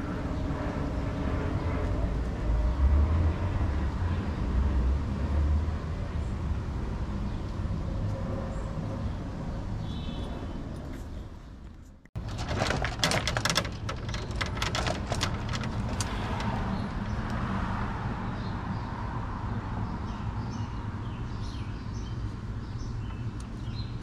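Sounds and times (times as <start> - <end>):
sharp clicks and rattles: 12.2 - 17.4.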